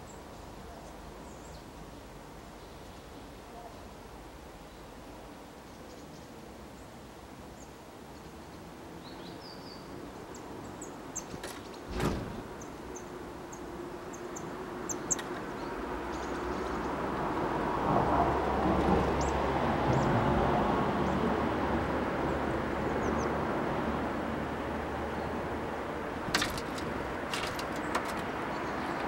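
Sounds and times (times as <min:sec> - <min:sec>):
birds chirping: 0:10.6 - 0:17.0, 0:26.0 - 0:29.0.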